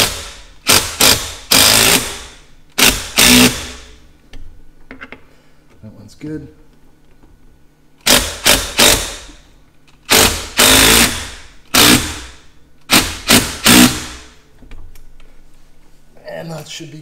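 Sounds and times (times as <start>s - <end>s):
impact driver hammering: 0.0s - 4.0s, 8.0s - 9.4s, 10.0s - 14.4s.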